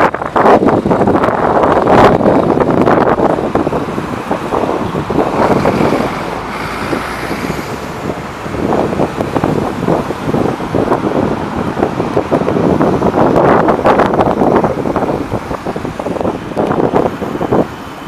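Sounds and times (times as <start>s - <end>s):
cars passing: 0.0s - 18.0s
wind buffeting microphone: 0.0s - 18.0s.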